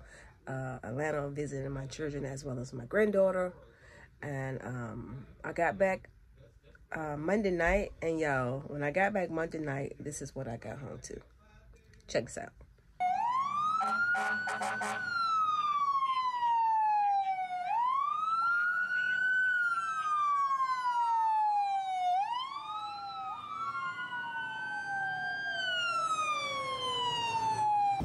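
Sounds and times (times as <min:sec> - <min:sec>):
emergency sirens wailing: 0:13.0 - 0:28.0.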